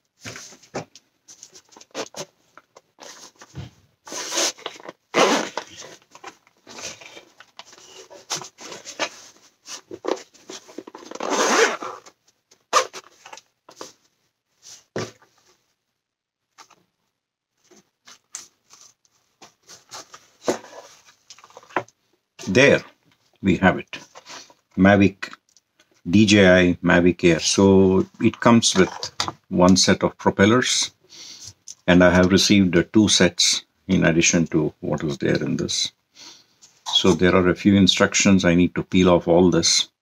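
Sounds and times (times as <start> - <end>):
zipper being pulled open: 4.1 - 6.0, 11.0 - 12.1.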